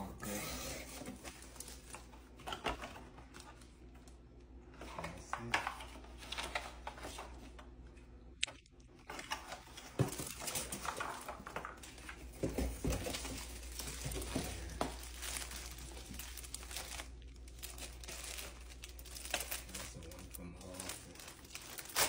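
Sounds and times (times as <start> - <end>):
cardboard box rustling and crinkling: 9.2 - 22.0.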